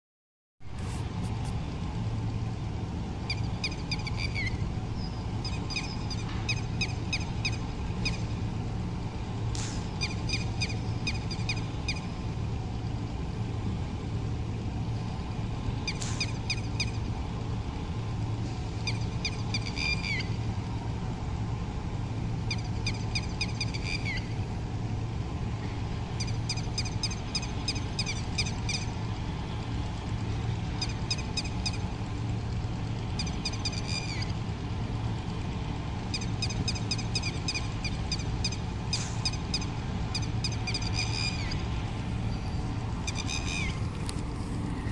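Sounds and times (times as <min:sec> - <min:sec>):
steady low hum: 0:00.6 - 0:44.9
lapwing calling: 0:22.5 - 0:24.4, 0:33.2 - 0:34.4, 0:36.1 - 0:41.8, 0:42.4 - 0:44.2.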